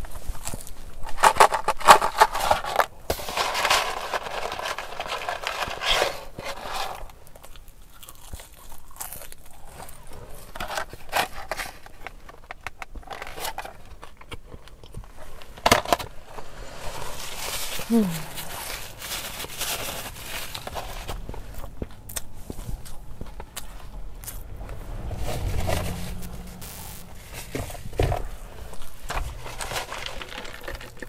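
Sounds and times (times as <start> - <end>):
paper packaging crinkling: 0.0 - 7.6, 15.4 - 21.3, 25.4 - 31.0
chewing: 6.5 - 11.1, 17.8 - 24.8, 28.3 - 31.0.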